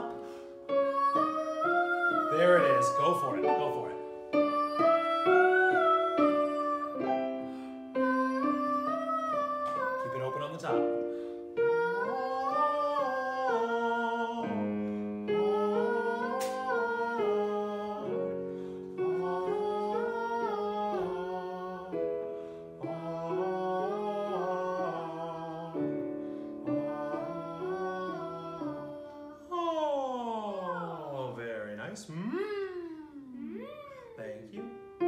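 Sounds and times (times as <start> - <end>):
keyboard chords: 0.0 - 29.6
man singing vocal warm-up: 1.2 - 4.1, 9.6 - 11.0, 22.8 - 26.1.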